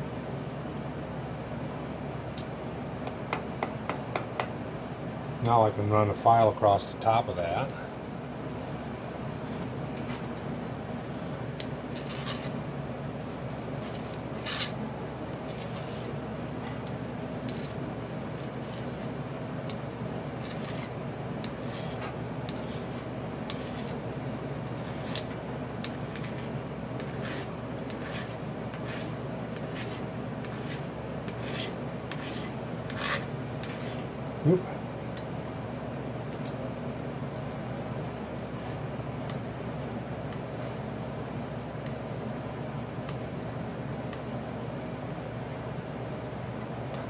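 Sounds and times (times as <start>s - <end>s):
file rasping across metal: 12.0s - 12.6s, 13.8s - 14.8s, 15.4s - 16.1s, 16.8s - 17.8s, 18.4s - 19.1s, 20.4s - 24.0s, 24.8s - 34.1s.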